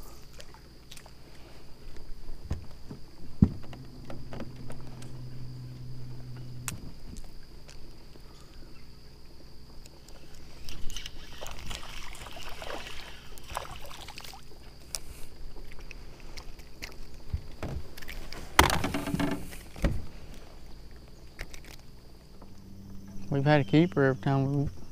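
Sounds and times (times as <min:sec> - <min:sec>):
fish knocking on metal hull: 0:02.5 - 0:05.6
fish splashing at surface: 0:10.6 - 0:14.4.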